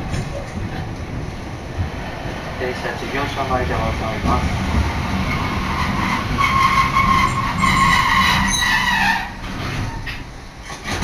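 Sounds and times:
streetcar rumble: 0.0 - 11.0
high-pitched metallic squeal: 5.3 - 10.2.

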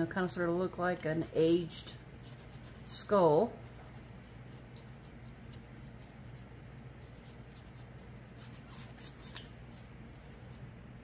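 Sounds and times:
steady low hum: 0.0 - 11.0
small tool scratching resin: 7.0 - 9.4.

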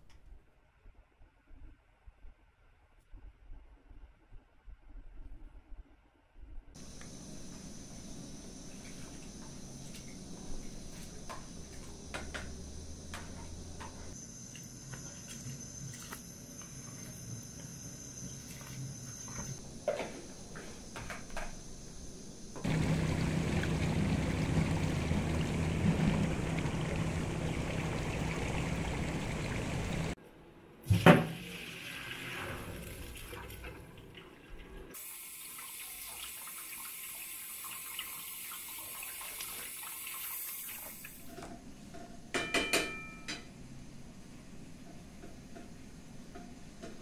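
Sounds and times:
water pouring into colander: 22.6 - 30.2, 30.9 - 41.2
water trickling: 22.6 - 30.2.

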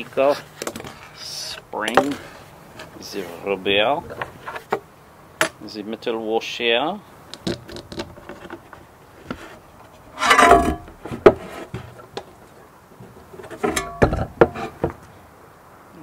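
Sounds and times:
rustling scrape: 0.2 - 4.8, 8.2 - 12.1.

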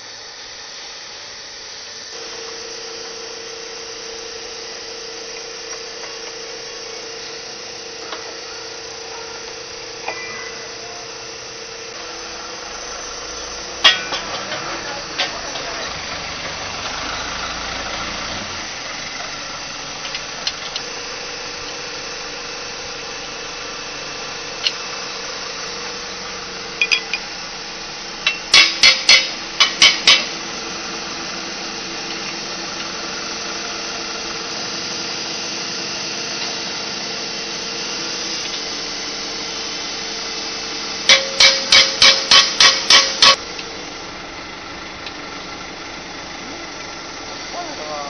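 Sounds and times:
steady background hum: 0.0 - 16.5, 18.5 - 48.0
metal clanks and hammer strikes: 13.8 - 15.8, 26.8 - 27.2, 28.2 - 30.4, 41.1 - 43.4.

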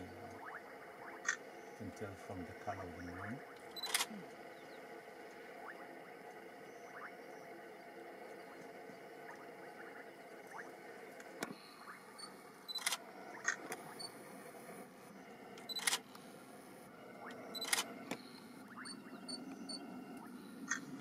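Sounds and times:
faint outdoor background: 0.0 - 21.0
camera shutter clicks: 3.8 - 4.1, 12.7 - 13.8, 15.6 - 16.2, 17.6 - 18.0.

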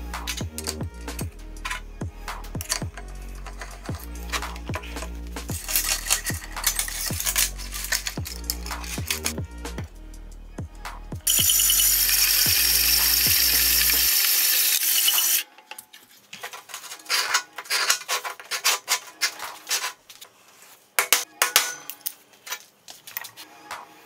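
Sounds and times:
band saw cutting steel: 11.3 - 15.4
steel bar scraping on workbench: 16.6 - 20.0.

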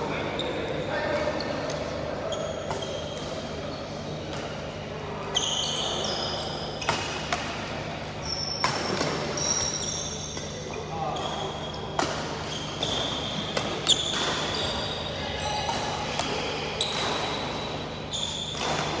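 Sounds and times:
shoes squeaking on court: 0.3 - 7.3, 8.1 - 19.0.

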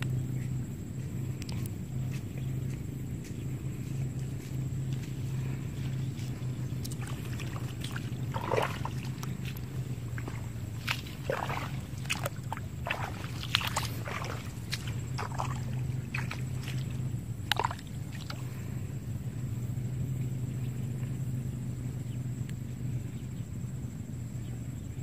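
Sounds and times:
steady low hum: 0.0 - 25.0
muddy water splashing: 1.0 - 21.2.

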